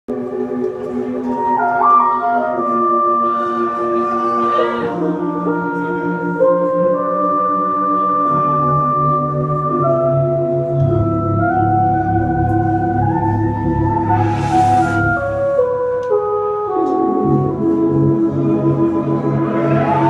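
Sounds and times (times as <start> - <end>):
sustained organ chords: 0.1 - 20.0
low bass line: 8.3 - 20.0.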